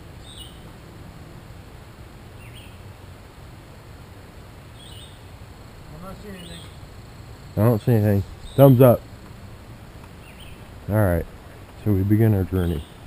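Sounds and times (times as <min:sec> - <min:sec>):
faint outdoor background noise: 0:00.0 - 0:13.0
bird chirping: 0:00.2 - 0:00.7, 0:02.4 - 0:02.9, 0:04.7 - 0:09.5, 0:10.1 - 0:10.7, 0:11.8 - 0:13.0.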